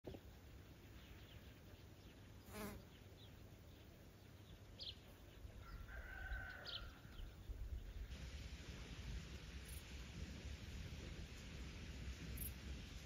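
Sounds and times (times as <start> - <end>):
rooster crowing: 5.6 - 7.3.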